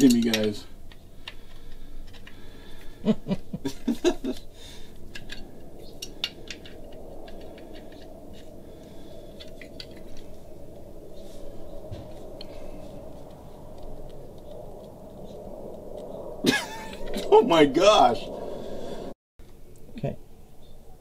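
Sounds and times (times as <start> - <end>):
faint steady hum: 0.0 - 21.0
pliers clicking and scraping metal: 5.0 - 8.5.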